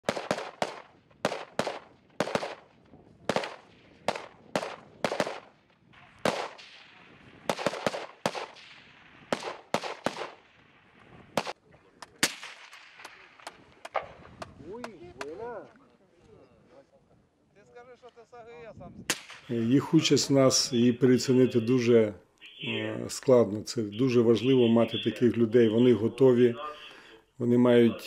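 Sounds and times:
rifle shots echoing: 0.0s - 14.4s, 19.1s - 19.6s.

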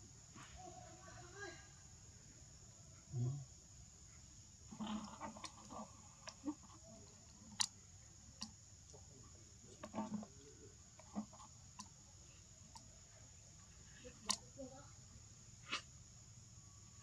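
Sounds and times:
macaques grunting softly: 4.7s - 7.7s.

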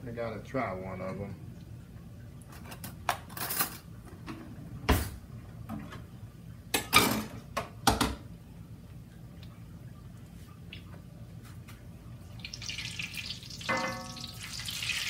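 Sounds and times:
low steady hum: 0.0s - 15.0s
kitchenware knocks and clatters: 6.8s - 8.2s, 13.7s - 14.3s.

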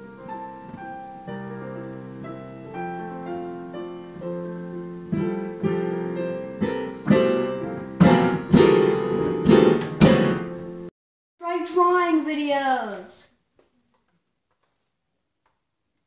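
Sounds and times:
piano notes and chords: 0.0s - 10.9s.

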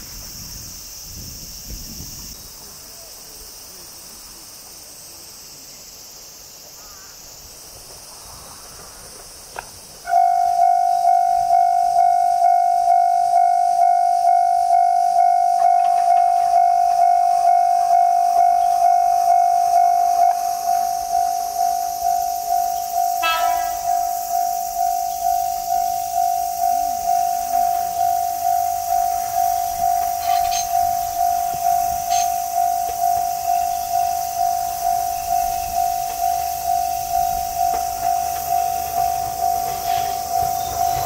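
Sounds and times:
steady high hiss: 0.0s - 41.0s
level crossing bell ringing: 10.1s - 41.0s.

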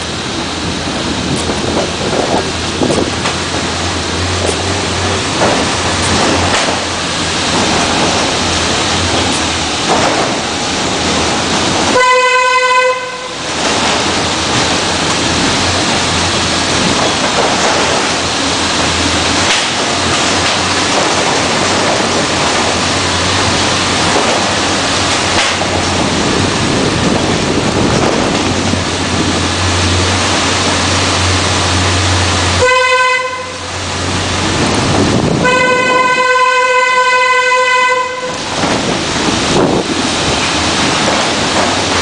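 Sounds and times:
wind on microphone: 0.7s - 12.0s, 20.9s - 31.0s, 34.3s - 36.3s, 38.4s - 42.0s
horn-like tone: 12.0s - 13.4s, 32.6s - 33.8s, 35.4s - 38.4s.

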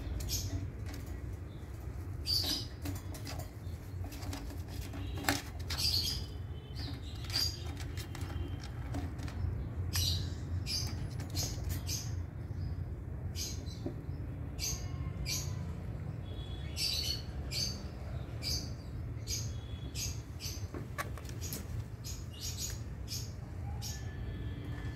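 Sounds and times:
parakeets squeaking: 0.0s - 12.4s.

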